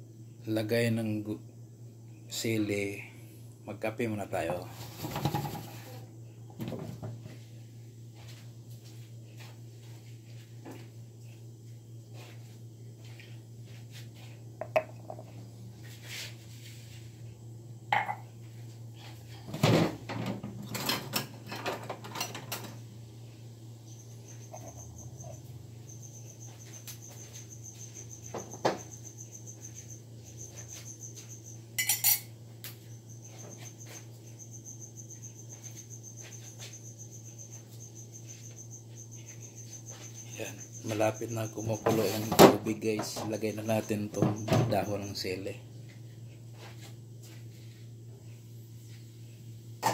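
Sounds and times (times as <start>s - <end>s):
mugs and spoon clinking: 14.6s - 15.3s, 17.9s - 18.3s, 31.8s - 32.3s.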